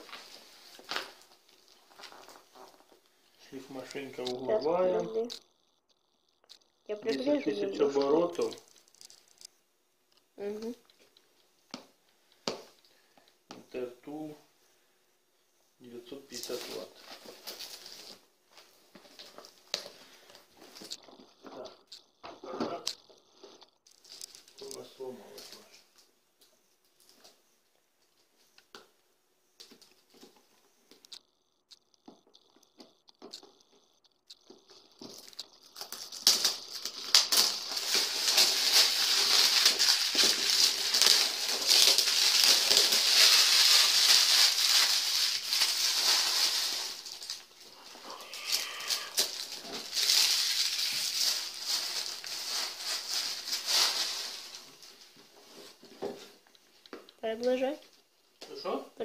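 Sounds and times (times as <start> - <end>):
plastic packaging crinkling: 0.0 - 5.4, 6.1 - 9.6, 16.0 - 25.9, 29.6 - 56.8.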